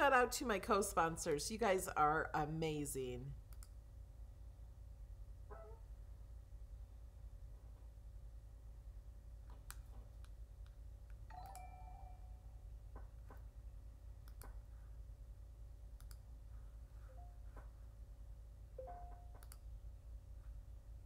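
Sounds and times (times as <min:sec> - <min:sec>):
faint sharp clicks: 0:03.5 - 0:03.8, 0:16.0 - 0:16.2
short ringing tone: 0:11.3 - 0:12.6.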